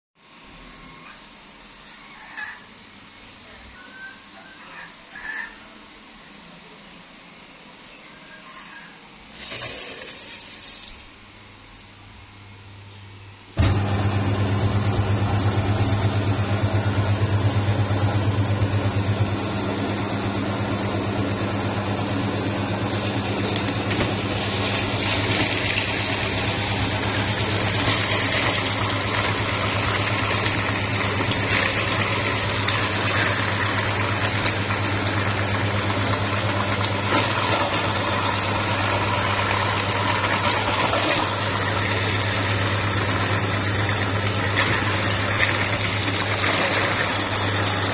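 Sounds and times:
meat grinder motor humming: 13.6s - 47.9s.

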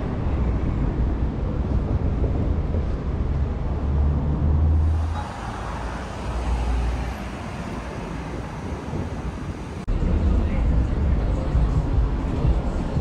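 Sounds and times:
heavy low traffic rumble: 0.0s - 13.0s
car passing by: 2.9s - 9.9s.

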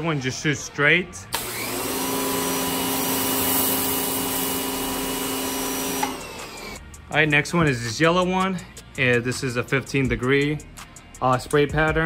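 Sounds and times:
pressure washer running: 1.3s - 6.8s.

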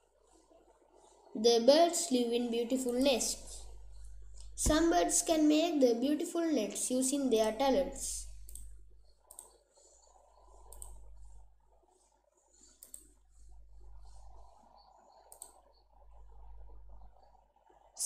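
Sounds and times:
low background hum and hiss: 0.0s - 9.4s
faint sharp clicks: 8.4s - 8.7s, 9.3s - 11.3s, 12.7s - 13.1s, 15.3s - 15.7s.

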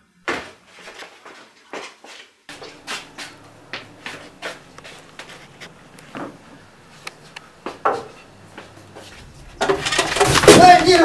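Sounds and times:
footsteps: 0.3s - 11.0s
faint steady hum: 2.5s - 11.0s.

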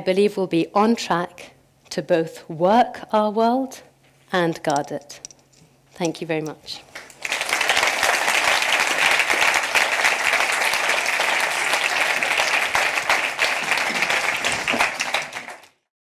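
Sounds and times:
audience applauding: 7.0s - 15.8s.

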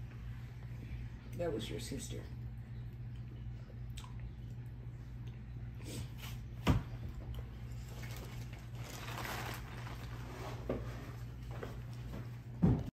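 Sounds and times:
steady low hum: 0.0s - 12.9s
rustling and handling noise: 7.4s - 12.7s.

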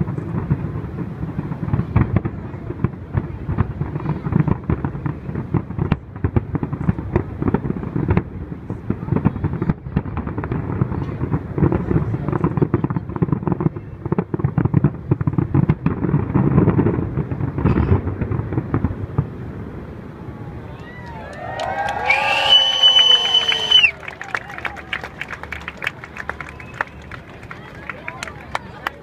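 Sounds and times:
fireworks booms and crackles: 0.0s - 20.3s.

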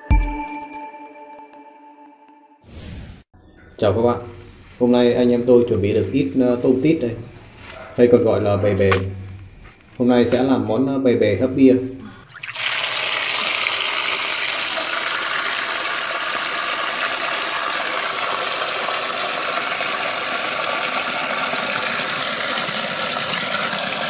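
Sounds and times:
water gushing into a colander: 12.1s - 24.0s.

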